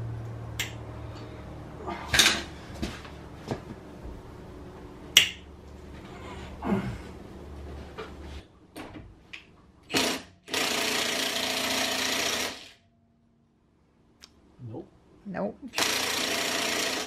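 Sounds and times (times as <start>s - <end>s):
impact wrench hammering: 9.9s - 12.8s, 15.8s - 17.0s.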